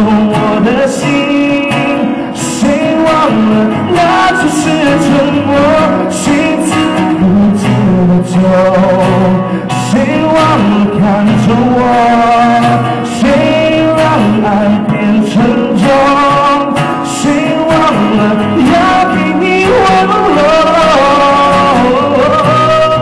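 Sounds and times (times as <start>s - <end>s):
person singing live: 0.0s - 23.0s.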